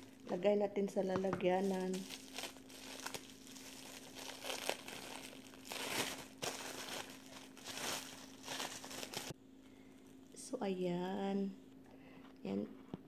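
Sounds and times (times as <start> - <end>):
faint steady hum: 0.0 - 13.0
plastic bag crinkling: 1.6 - 9.3.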